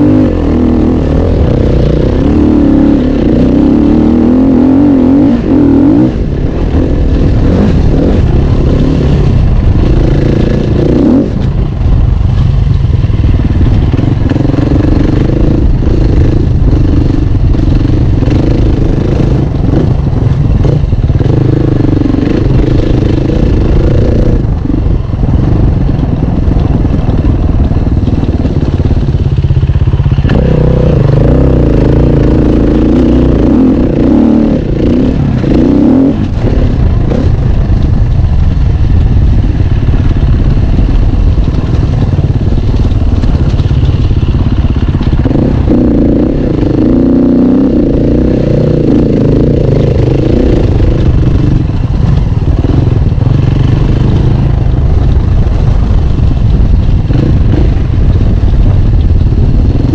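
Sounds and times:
bike rattling over rough ground: 0.0 - 59.9
dirt bike engine revving: 0.0 - 59.9.

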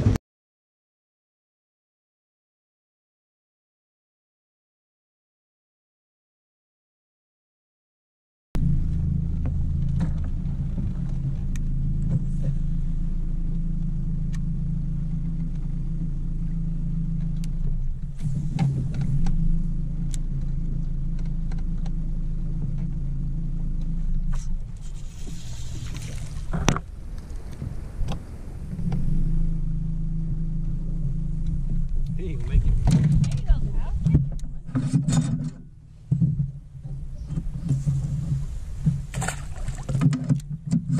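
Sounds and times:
fish splashing at surface: 38.4 - 40.1.

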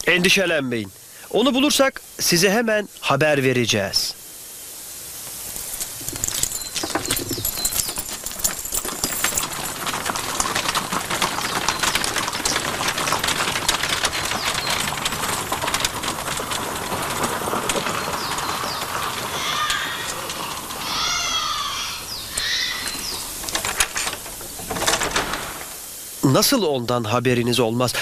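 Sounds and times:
horse hooves clattering on stone: 5.3 - 26.0.

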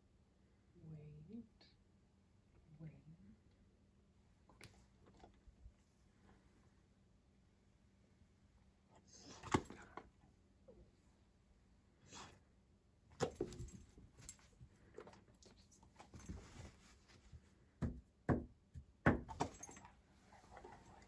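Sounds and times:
dog knocking and thumping on carpet: 13.2 - 15.1, 17.8 - 19.8.

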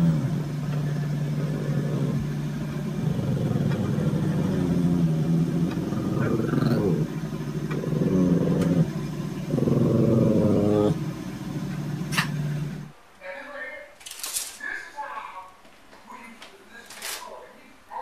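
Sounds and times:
dog growling: 0.0 - 12.9.

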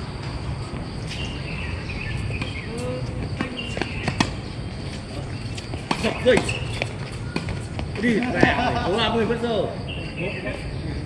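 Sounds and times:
tennis balls knocking: 5.5 - 8.9.

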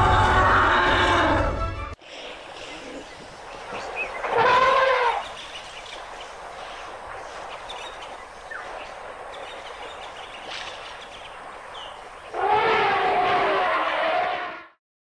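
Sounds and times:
elephant trumpeting: 0.0 - 1.8, 4.2 - 5.4, 12.3 - 14.7
faint background hiss: 2.0 - 12.4.

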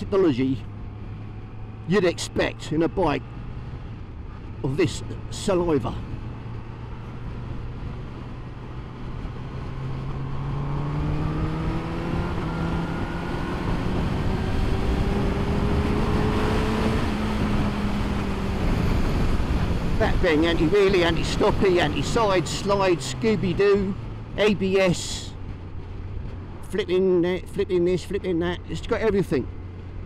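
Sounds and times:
motorcycle engine accelerating: 5.7 - 24.6.

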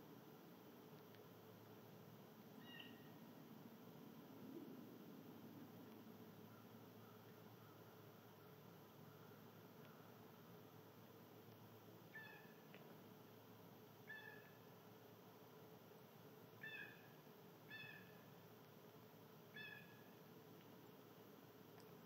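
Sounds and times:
faint steady hiss: 0.0 - 22.0.

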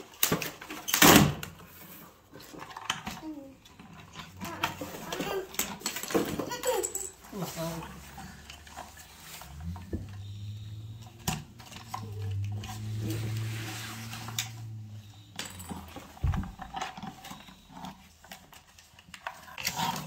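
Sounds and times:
plastic toy truck clicking: 15.4 - 20.0.

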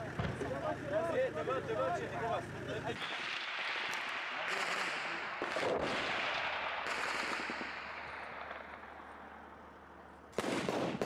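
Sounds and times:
automatic gunfire: 3.0 - 9.1, 10.3 - 11.0.

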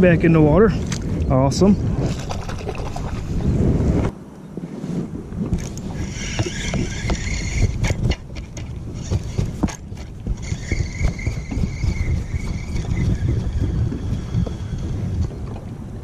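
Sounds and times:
wind buffeting microphone: 0.0 - 16.0
fishing reel whirring: 5.6 - 15.6.

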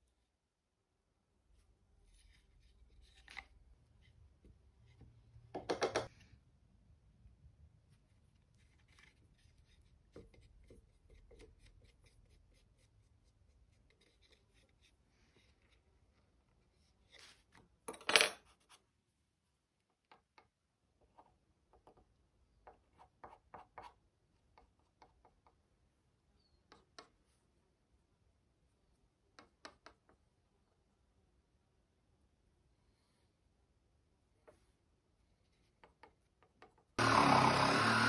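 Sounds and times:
metal tool clattering on table: 17.9 - 18.4.

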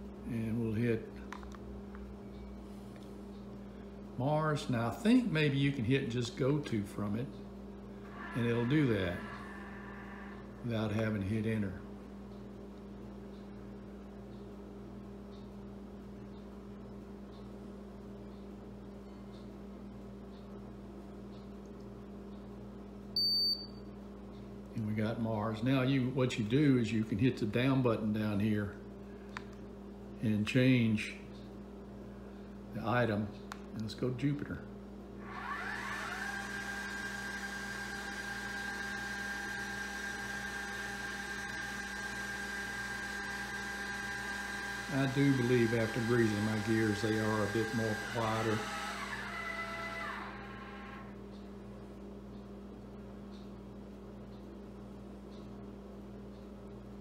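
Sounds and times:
low hum: 6.7 - 20.8
telescope motor pulsing hum: 7.9 - 11.2, 35.2 - 51.5.

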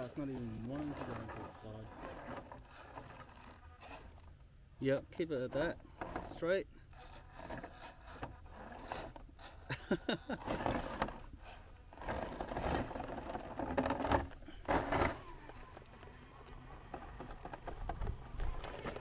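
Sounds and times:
clicks and scrapes: 0.0 - 4.3, 5.6 - 9.7.

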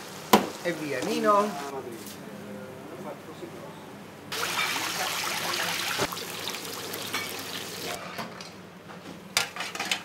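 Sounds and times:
pans and utensils clinking: 4.4 - 4.9, 7.0 - 8.5, 9.4 - 10.0.

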